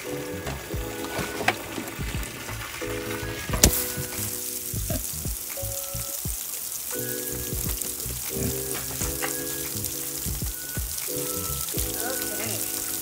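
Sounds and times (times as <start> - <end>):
background music chords: 0.0 - 13.0
hose water splashing into tub: 0.4 - 13.0.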